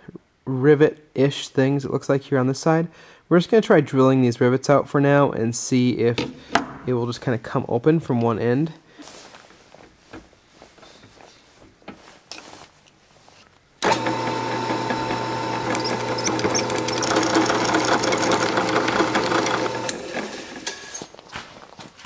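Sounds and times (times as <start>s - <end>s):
drill bit drilling rivet: 13.8s - 21.0s
drill press motor humming: 13.8s - 21.0s.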